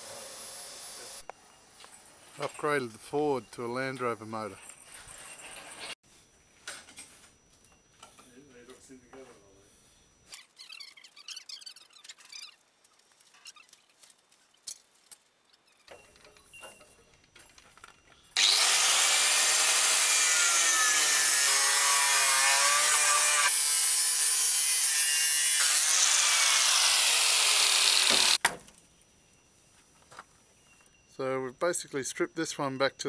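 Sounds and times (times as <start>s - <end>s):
angle grinder cutting steel: 18.4s - 28.4s.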